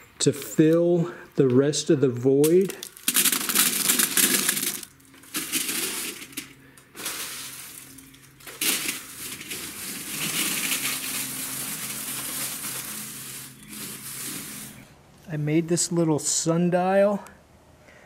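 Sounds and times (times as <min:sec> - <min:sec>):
faint steady hum: 0:00.0 - 0:18.0
cardboard pieces rattling into box: 0:02.4 - 0:14.8.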